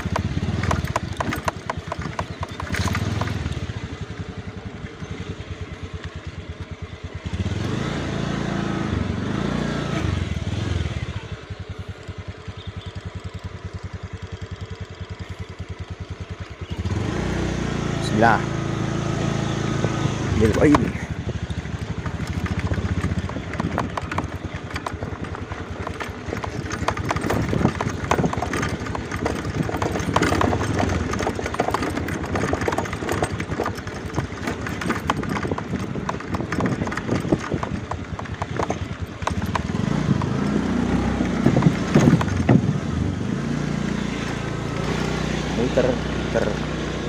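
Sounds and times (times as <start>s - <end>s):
rattle and knocking from bumps: 0.0s - 5.1s, 19.2s - 42.9s
small motorcycle engine running: 0.0s - 47.0s.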